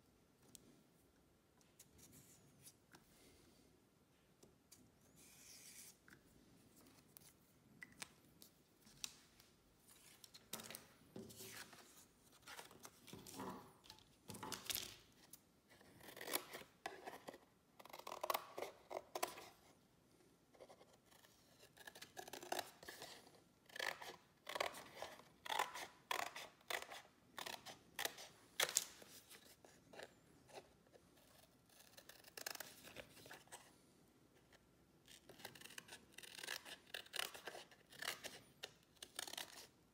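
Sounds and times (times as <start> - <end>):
scissors cutting cardboard: 15.7 - 19.5.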